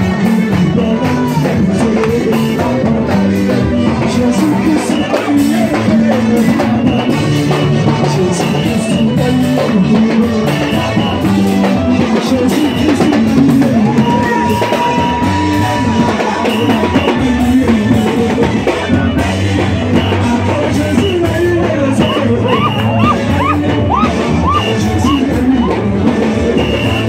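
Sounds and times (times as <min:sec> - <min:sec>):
live worship band playing: 0:00.0 - 0:27.0
person singing: 0:00.0 - 0:27.0
steady high tone: 0:22.0 - 0:25.8.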